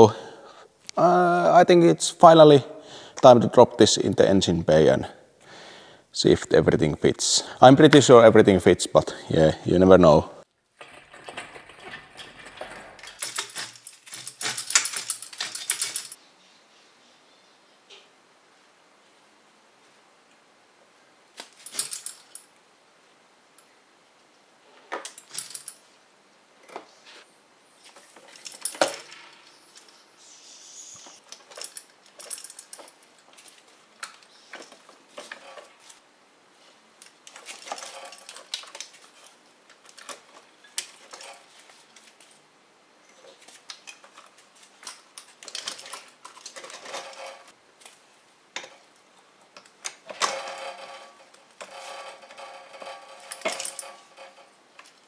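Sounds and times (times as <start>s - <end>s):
metallic clinks and clatter: 10.8s - 16.2s, 21.6s - 22.5s, 25.0s - 25.9s, 28.0s - 30.1s, 31.2s - 35.9s, 37.0s - 41.6s, 43.8s - 47.5s, 49.8s - 55.0s.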